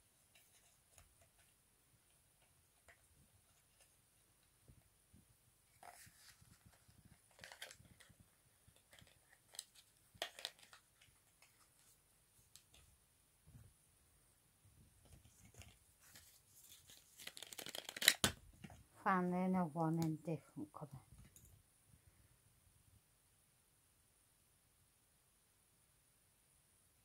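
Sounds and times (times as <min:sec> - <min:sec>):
plastic packaging clicks and crinkles: 0:05.7 - 0:11.9, 0:15.0 - 0:18.7.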